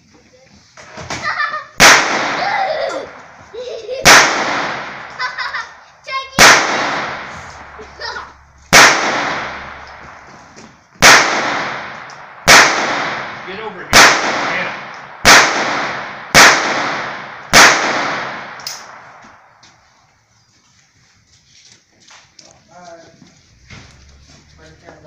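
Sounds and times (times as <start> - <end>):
pistol shots echoing: 1.8 - 3.4, 4.0 - 5.3, 6.4 - 7.8, 8.7 - 10.3, 11.0 - 19.3.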